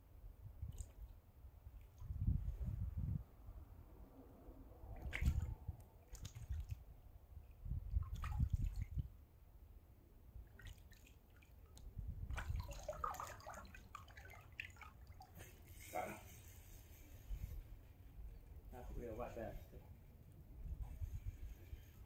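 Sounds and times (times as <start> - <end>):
wind gusts on microphone: 0.3 - 9.2, 11.9 - 12.8, 20.5 - 22.0
water splashing on rocks: 5.0 - 5.5.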